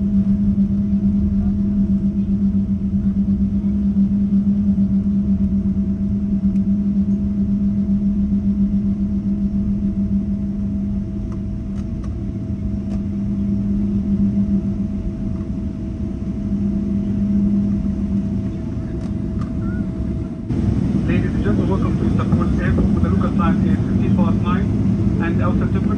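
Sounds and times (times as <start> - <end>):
vehicle interior drone: 0.0 - 25.9.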